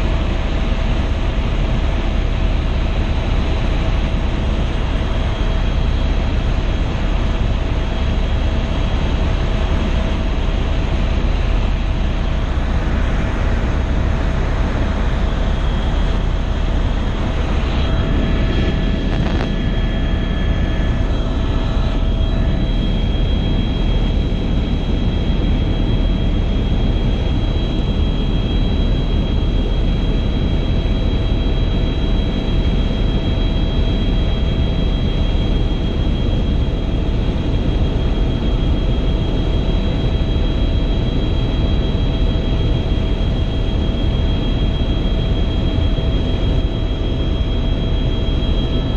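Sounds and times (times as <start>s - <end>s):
helicopter engine and rotor drone: 0.0s - 48.9s
high whine: 9.0s - 33.2s.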